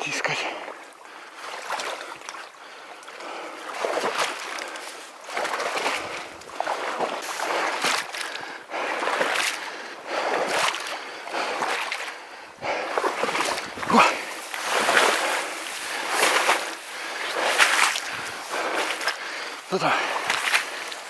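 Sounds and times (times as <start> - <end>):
footsteps wading through marsh: 0.0 - 21.0
water sloshing: 0.0 - 21.0
wet grass swishing: 3.7 - 8.4, 12.9 - 21.0.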